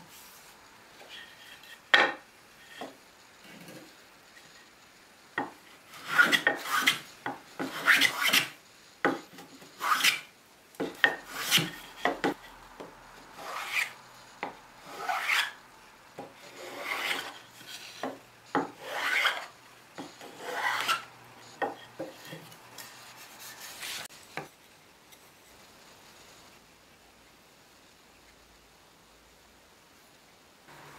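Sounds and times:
plane scraping wood: 5.9 - 8.6, 9.7 - 12.4, 13.3 - 15.6, 16.2 - 24.1.

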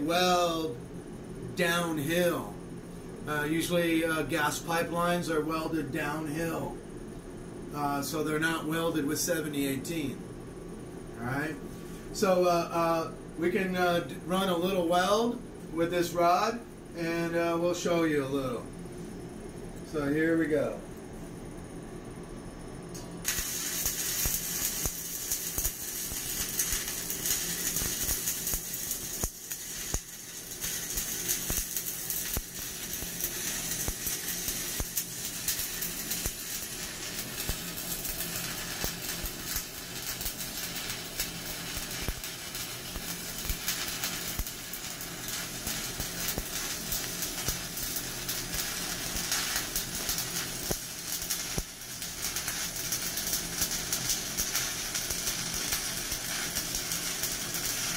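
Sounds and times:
welding arc crackling: 0.0 - 0.8, 22.9 - 57.9.

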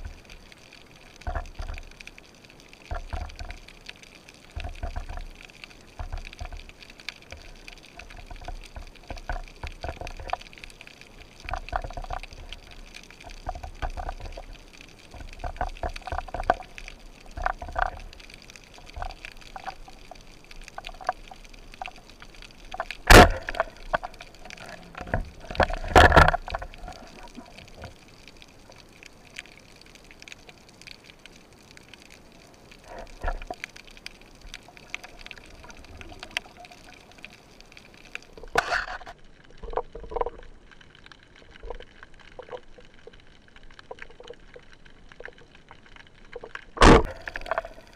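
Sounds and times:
soft underwater knocks and rustles: 0.0 - 47.9
speargun firing crack: 46.8 - 47.1.

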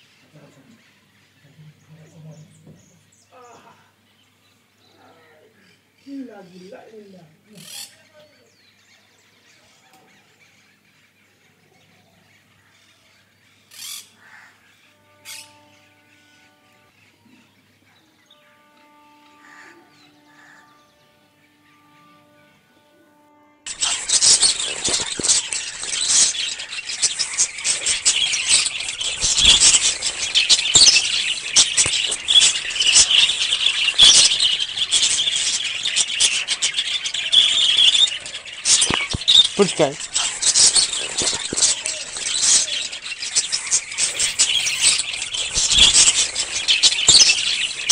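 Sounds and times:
faint outdoor background: 0.0 - 47.9
small birds chirping: 0.0 - 47.9.

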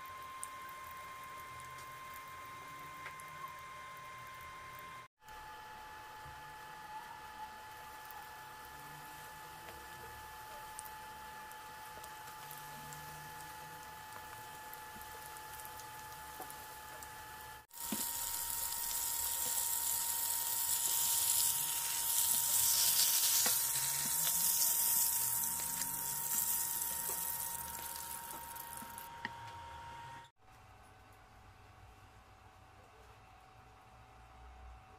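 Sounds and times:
oil sizzling in a skillet: 17.7 - 29.1.

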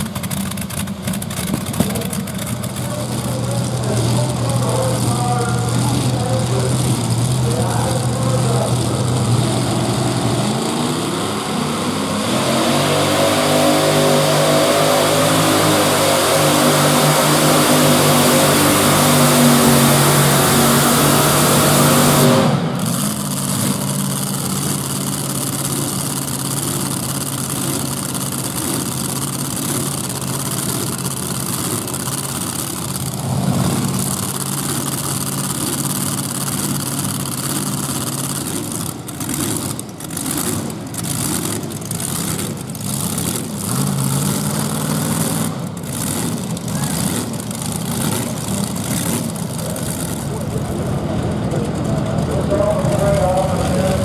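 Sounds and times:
tractor engines roaring at full throttle: 0.0 - 54.0.

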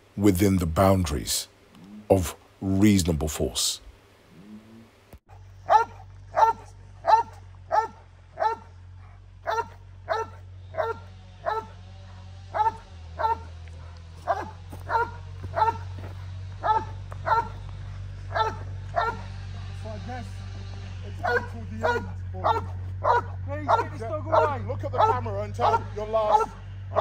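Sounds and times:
dog barking: 5.6 - 17.7, 18.3 - 19.4, 21.2 - 27.0.

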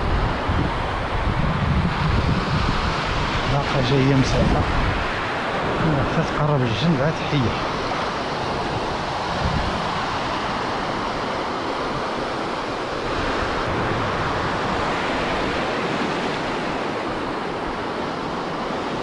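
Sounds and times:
surf washing over beach: 0.0 - 19.0.

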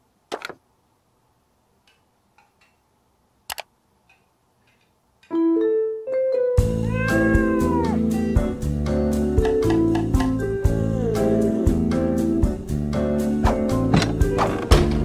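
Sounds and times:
music: 5.3 - 15.0
rising piano notes: 5.3 - 15.0.

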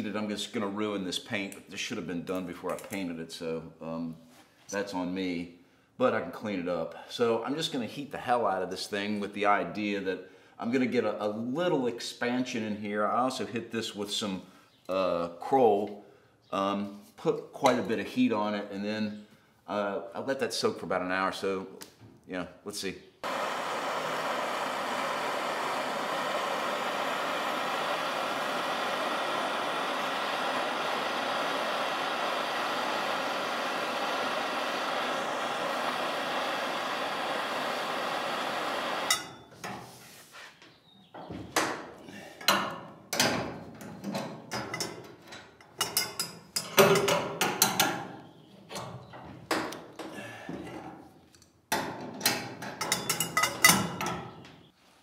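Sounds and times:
torch flame hissing: 23.2 - 39.3.

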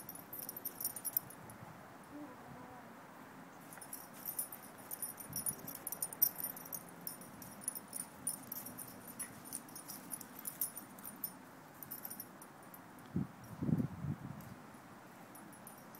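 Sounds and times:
metallic jingling and clicking: 0.0 - 1.4, 3.7 - 12.9, 15.3 - 15.9.

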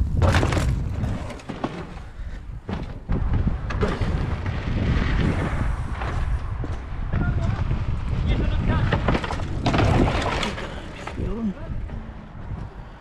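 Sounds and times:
mountain bikes rolling on dirt: 0.0 - 13.0
wind buffeting microphone: 0.0 - 13.0
sharp knocks and rattles: 5.9 - 13.0.

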